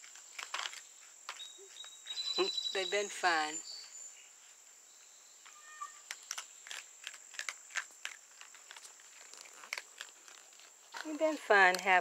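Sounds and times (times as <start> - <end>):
raccoons crunching kibble: 0.0 - 2.2, 6.0 - 12.0
high-pitched animal call: 5.5 - 6.1.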